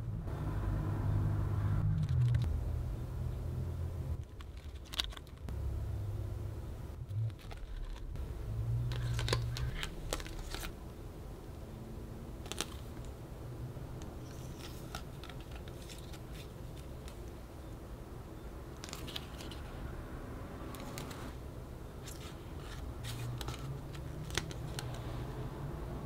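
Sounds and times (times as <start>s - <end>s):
plastic rustling: 4.2s - 5.5s, 7.2s - 8.2s, 8.9s - 10.8s.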